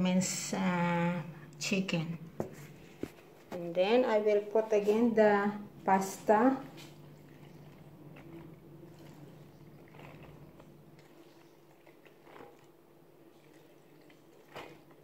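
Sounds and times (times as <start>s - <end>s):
low hum: 0.0s - 15.0s
soft squishing of pasta: 6.6s - 15.0s.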